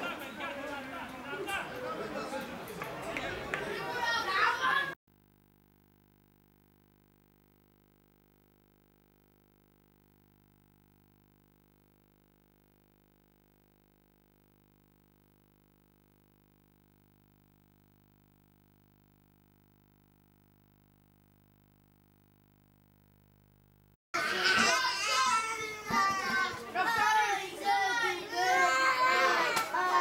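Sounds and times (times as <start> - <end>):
faint electronic hum: 5.1 - 24.0.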